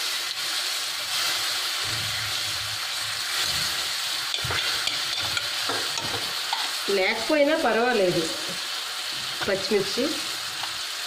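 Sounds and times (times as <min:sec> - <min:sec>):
cream sizzling in a pan: 0:00.0 - 0:11.0
spoon stirring: 0:04.3 - 0:06.7.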